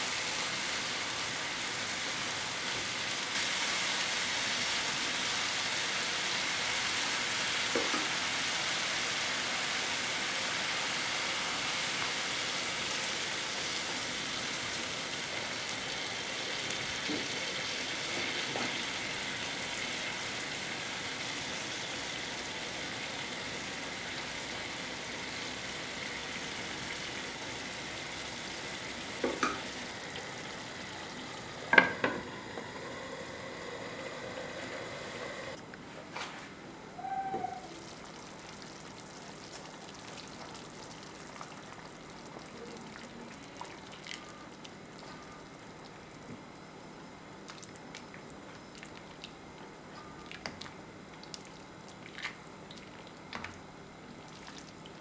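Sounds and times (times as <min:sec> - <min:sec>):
vegetables sizzling in a frying pan: 0:00.0 - 0:35.4.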